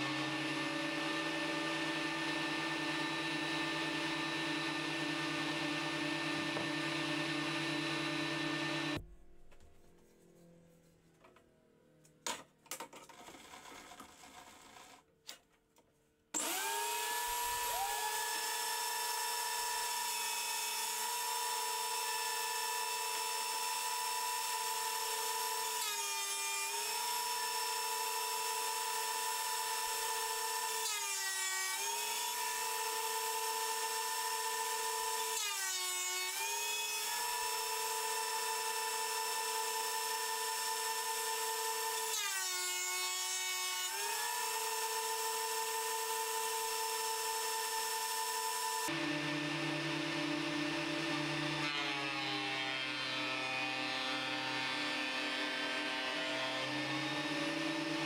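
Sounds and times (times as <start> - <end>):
planer cutting board: 0.0 - 9.0, 16.4 - 58.0
planer motor whining: 0.0 - 9.0, 16.4 - 23.4, 46.4 - 58.0.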